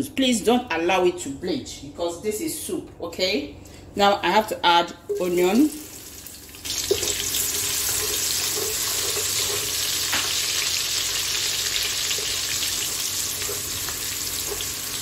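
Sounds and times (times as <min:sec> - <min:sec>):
onions sizzling in oil: 0:05.2 - 0:15.0.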